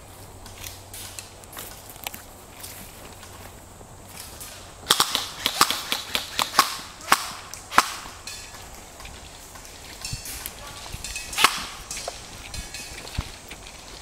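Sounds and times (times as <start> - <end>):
airsoft gun shots: 4.9 - 8.2, 11.3 - 11.9.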